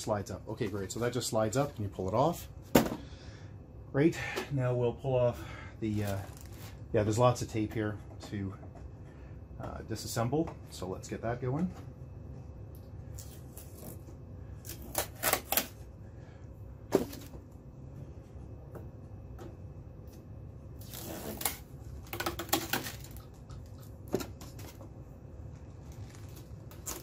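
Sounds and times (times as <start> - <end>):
packing tape peeling: 13.2 - 14.0, 14.6 - 15.8, 20.8 - 23.3, 25.8 - 27.0.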